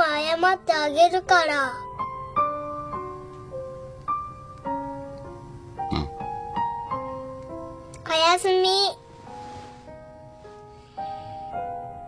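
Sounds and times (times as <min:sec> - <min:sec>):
soft piano music: 0:00.0 - 0:12.0.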